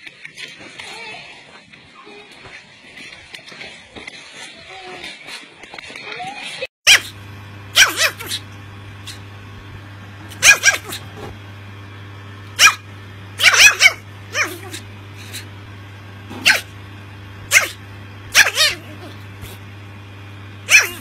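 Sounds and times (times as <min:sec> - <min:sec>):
puppy barking in high yaps: 0:06.9 - 0:09.2, 0:10.3 - 0:11.1, 0:12.6 - 0:15.4, 0:16.3 - 0:16.7, 0:17.5 - 0:19.6, 0:20.7 - 0:21.0.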